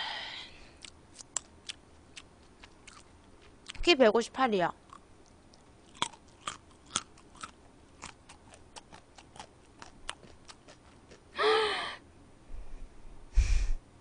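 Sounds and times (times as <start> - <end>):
breathy voiced sound: 0.0 - 0.9, 11.3 - 13.8
wet chewing and mouth smacks: 0.8 - 3.8, 4.9 - 11.3.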